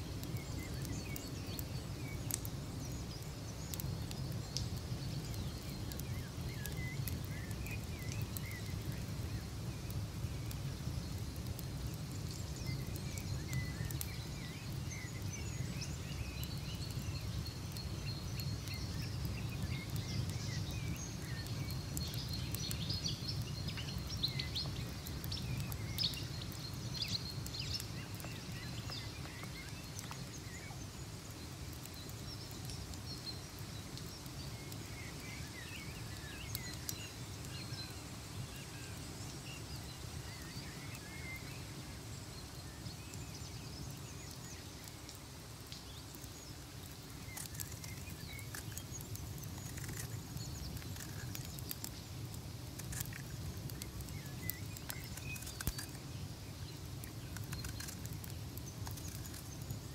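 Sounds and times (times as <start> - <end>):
sharp crackles: 0.0 - 59.9
small birds chirping: 0.0 - 59.9.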